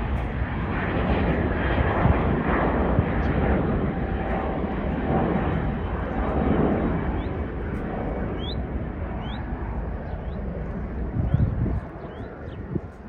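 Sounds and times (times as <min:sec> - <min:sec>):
jet airliner rumble: 0:00.0 - 0:13.0.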